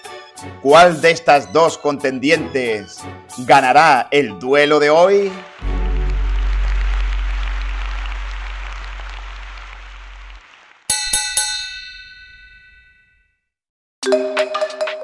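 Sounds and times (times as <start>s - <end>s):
deep cinematic boom: 5.6s - 10.6s.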